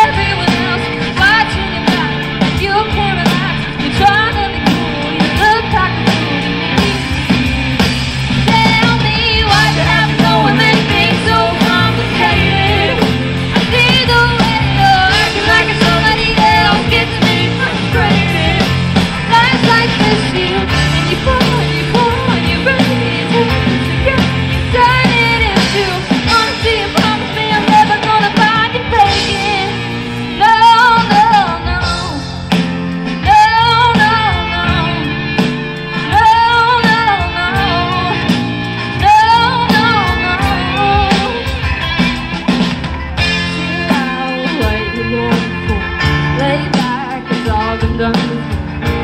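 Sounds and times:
live rock band playing: 0.0s - 49.0s.

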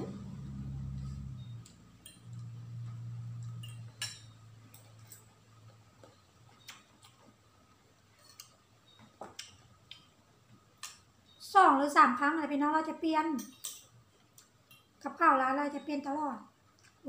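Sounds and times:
faint low hum: 0.0s - 17.0s
cutlery clinking on ceramic bowls: 3.4s - 5.4s, 13.4s - 14.0s.

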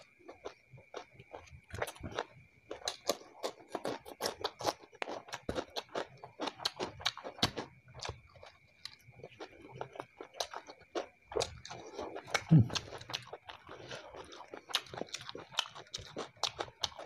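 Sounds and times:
chewing crunchy food: 0.0s - 17.0s.

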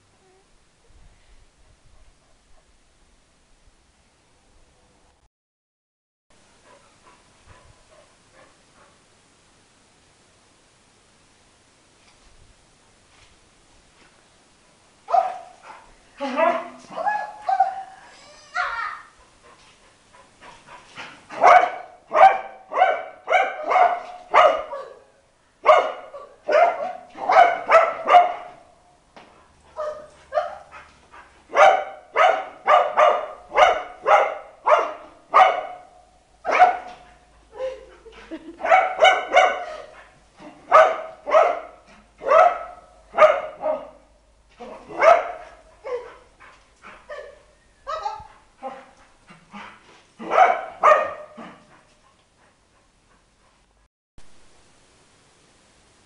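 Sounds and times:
dog barking excitedly: 15.1s - 18.0s, 20.2s - 28.7s, 29.7s - 37.3s, 38.6s - 49.0s, 49.6s - 51.9s.

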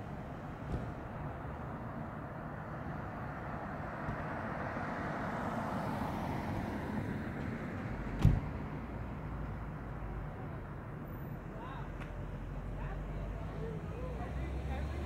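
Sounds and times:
vehicle passing: 3.9s - 8.1s, 12.9s - 15.0s.

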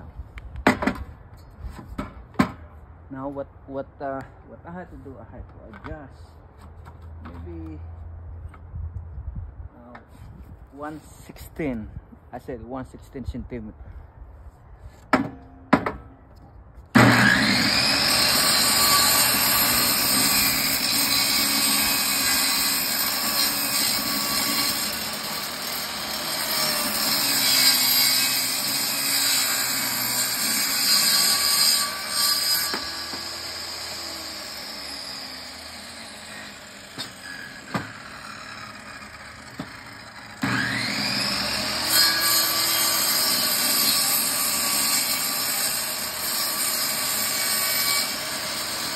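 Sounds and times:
table saw cutting wood: 17.0s - 48.9s.

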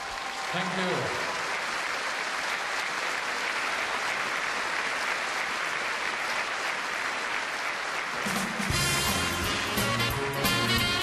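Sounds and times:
large audience applauding: 0.0s - 11.0s
music: 8.2s - 11.0s.

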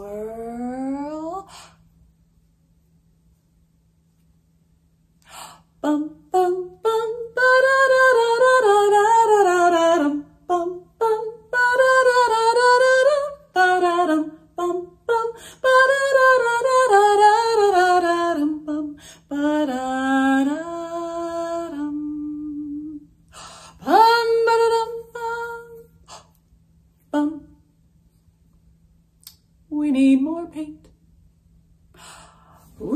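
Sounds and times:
woman singing wordless tune: 0.0s - 1.8s, 5.4s - 23.1s, 23.8s - 26.2s, 27.1s - 27.6s, 29.7s - 30.9s.

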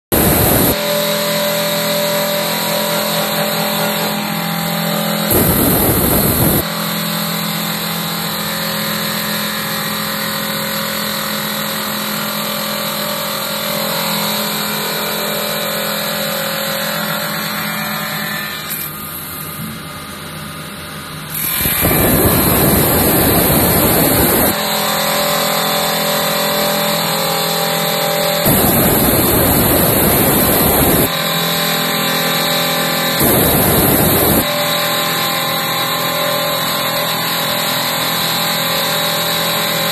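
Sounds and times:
electric motor humming: 0.1s - 0.8s, 2.6s - 6.6s, 21.4s - 24.6s, 28.4s - 31.1s, 33.2s - 34.5s
loud rushing noise: 0.1s - 0.8s, 5.2s - 6.6s, 21.6s - 24.6s, 28.4s - 31.1s, 33.2s - 34.5s.

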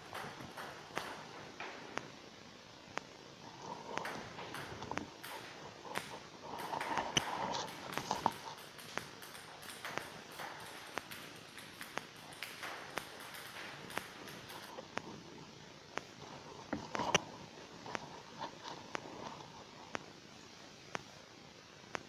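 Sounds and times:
ping-pong balls clicking on table: 0.0s - 2.1s, 3.0s - 15.1s.

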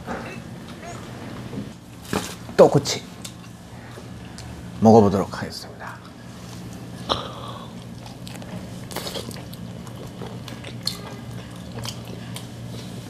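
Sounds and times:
steady low hum: 0.0s - 13.0s
chewing clicks: 7.8s - 12.5s
person biting food: 7.9s - 9.6s.

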